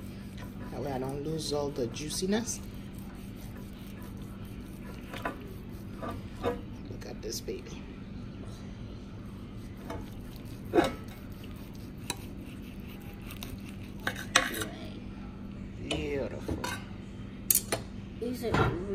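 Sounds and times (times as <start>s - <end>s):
knife scraping metal pan: 0.3s - 6.7s, 9.8s - 14.7s.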